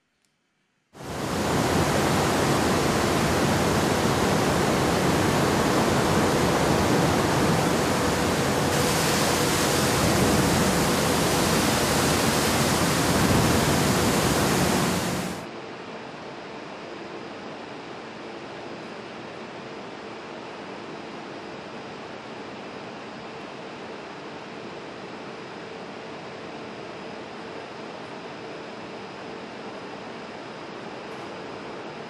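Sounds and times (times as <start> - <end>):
industrial equipment rushing noise: 1.2 - 15.4.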